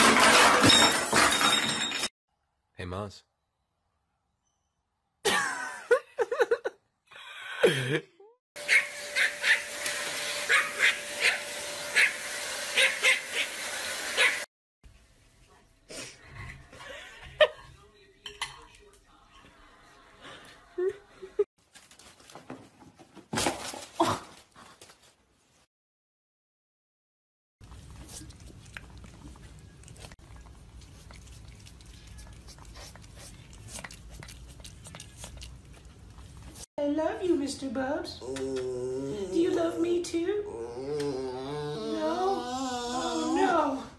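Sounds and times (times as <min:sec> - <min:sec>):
small dog yipping: 0:08.7 - 0:09.7, 0:10.5 - 0:11.4, 0:12.0 - 0:12.2, 0:12.8 - 0:13.6, 0:14.2 - 0:14.4
dog whining: 0:40.4 - 0:43.7.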